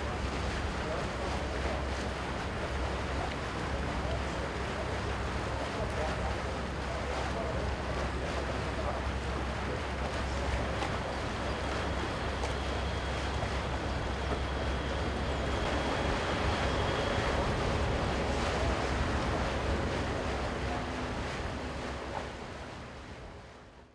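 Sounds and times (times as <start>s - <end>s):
water noise: 0.0s - 23.9s
wind buffeting microphone: 10.6s - 23.6s.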